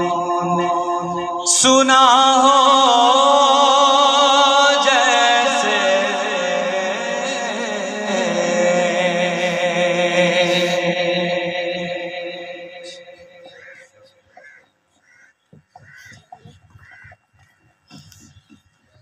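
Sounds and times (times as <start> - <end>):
man singing into a microphone: 0.0 - 13.9.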